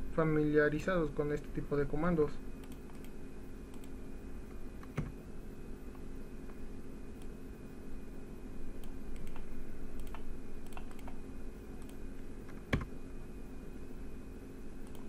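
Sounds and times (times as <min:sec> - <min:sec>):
steady low hum: 0:00.0 - 0:15.0
mouse and keyboard clicks: 0:10.0 - 0:11.2.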